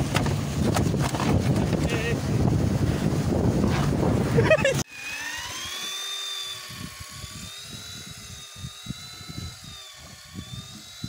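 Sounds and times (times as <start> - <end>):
fishing reel motor whining: 4.4 - 11.0.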